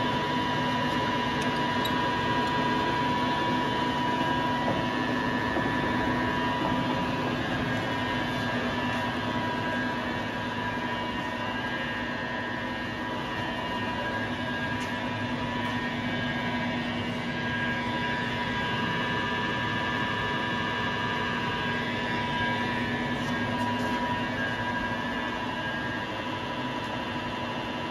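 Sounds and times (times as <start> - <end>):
lathe running with whine: 0.0 - 27.9.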